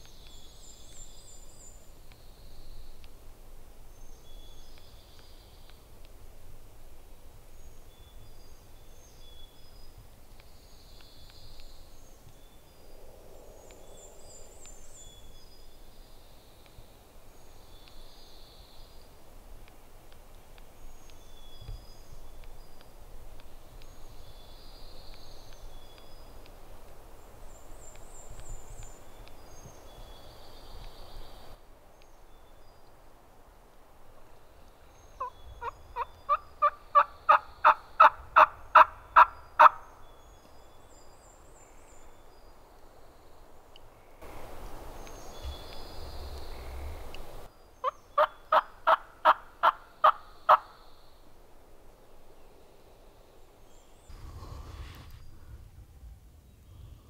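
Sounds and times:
songbird chirps: 0:00.0 - 0:55.5
wild turkey yelping: 0:35.2 - 0:39.8, 0:47.8 - 0:50.6.

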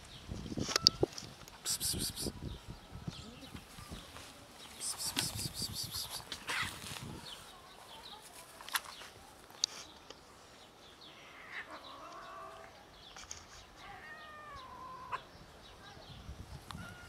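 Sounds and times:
cats meowing: 0:13.8 - 0:15.2.

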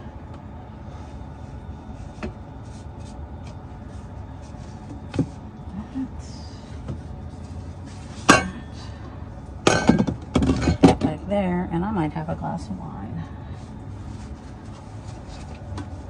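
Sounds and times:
bottles knocking and clinking: 0:09.7 - 0:11.2.

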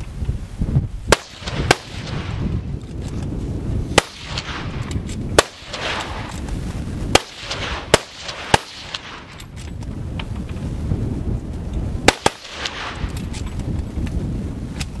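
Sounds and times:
rifle shots echoing: 0:01.1 - 0:02.6, 0:03.9 - 0:06.4, 0:07.1 - 0:09.5, 0:12.0 - 0:13.2.

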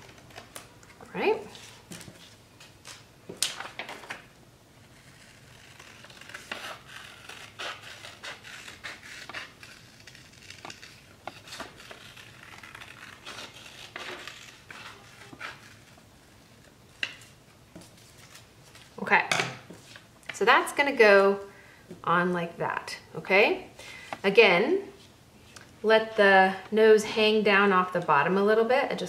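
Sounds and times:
scissors snipping paper: 0:05.0 - 0:15.9
paper rustling: 0:16.6 - 0:19.0, 0:19.7 - 0:20.1.

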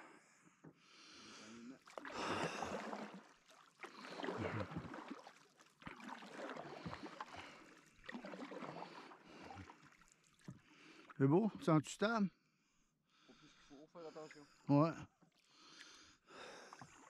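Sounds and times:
paddle swishing in water: 0:01.8 - 0:11.2, 0:15.2 - 0:17.0.

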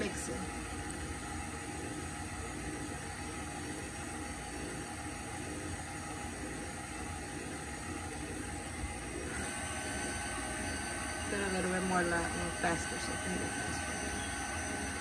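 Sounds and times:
high steady whine: 0:00.0 - 0:15.0
stand mixer beating dough: 0:00.0 - 0:15.0.

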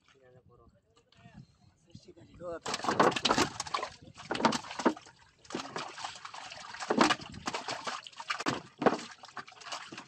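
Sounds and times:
water splashing and sloshing: 0:02.6 - 0:10.0.

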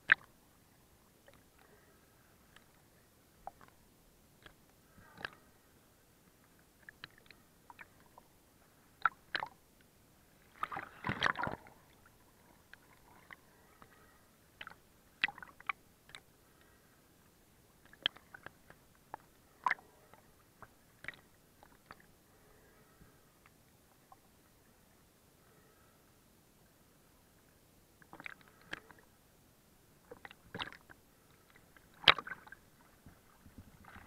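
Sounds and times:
small waves splashing: 0:10.3 - 0:16.9, 0:30.1 - 0:34.0.

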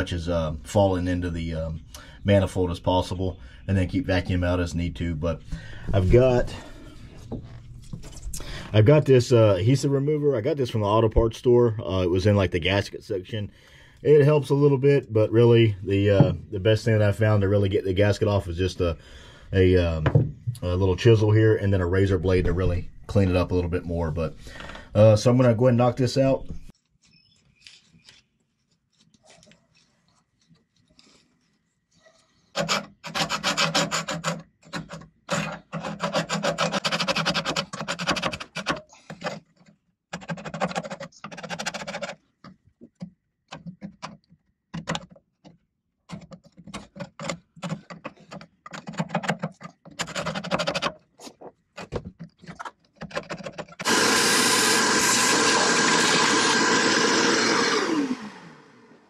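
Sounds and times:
vacuum cleaner running: 0:53.8 - 0:59.0.

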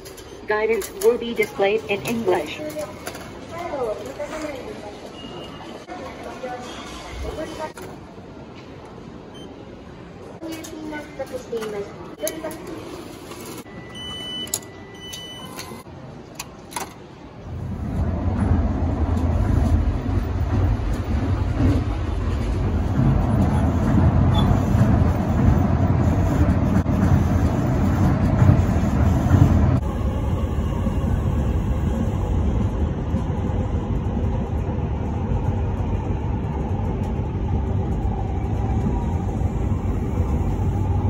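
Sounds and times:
monorail running rumble: 0:15.8 - 0:41.0.

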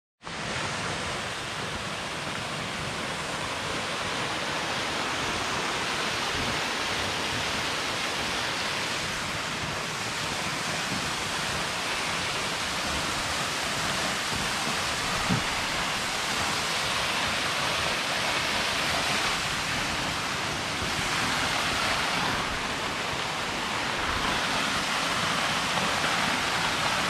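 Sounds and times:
small waterfall rushing: 0:00.2 - 0:27.0.

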